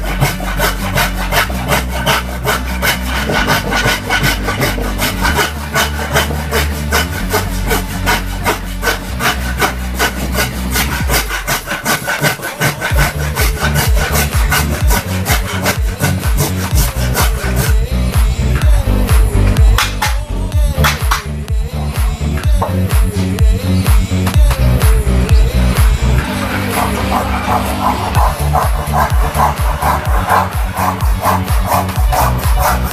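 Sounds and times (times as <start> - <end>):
hand saw rasping through wood: 0.0 - 18.7, 26.0 - 32.9.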